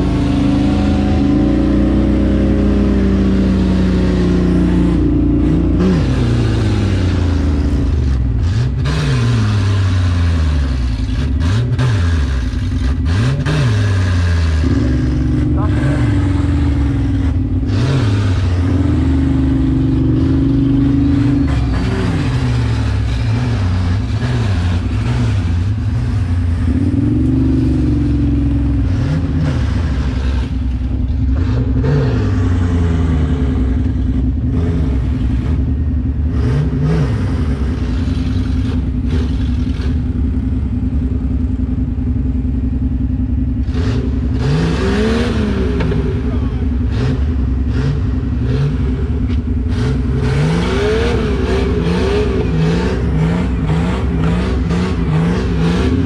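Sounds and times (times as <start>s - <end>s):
engine revving in blips: 0.0s - 41.6s, 42.2s - 56.0s.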